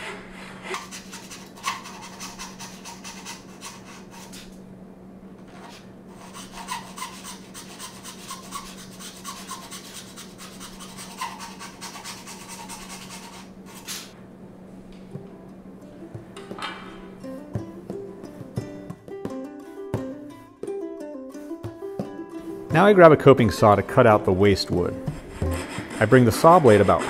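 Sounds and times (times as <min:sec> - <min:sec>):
hand saw cutting wood: 0:00.6 - 0:04.5, 0:05.6 - 0:14.1, 0:24.7 - 0:27.0.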